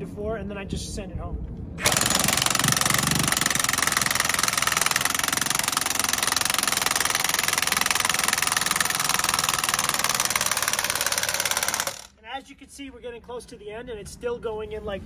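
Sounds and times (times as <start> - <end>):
impact wrench hammering: 1.8 - 12.1.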